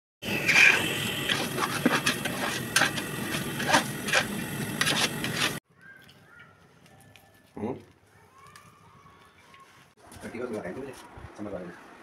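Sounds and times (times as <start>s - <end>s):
metal spatula scraping a pot: 0.3s - 5.6s.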